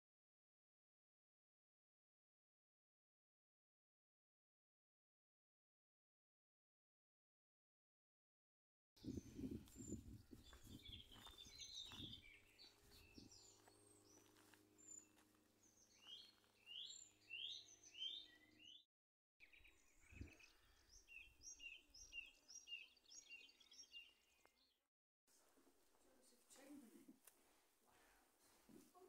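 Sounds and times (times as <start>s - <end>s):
low wind rumble: 9.0s - 13.5s
faint birdsong: 9.0s - 24.8s.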